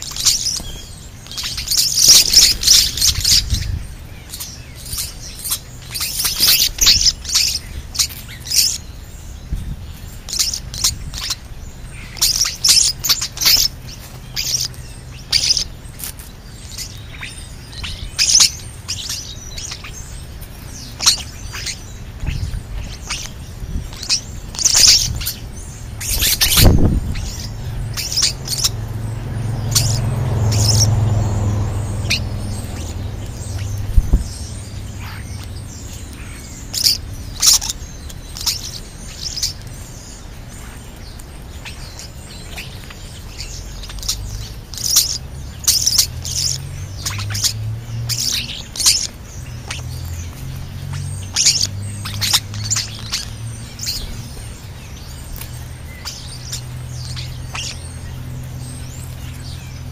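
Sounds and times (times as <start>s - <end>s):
starlings chattering: 0.0s - 59.9s
low rumble: 25.0s - 37.4s.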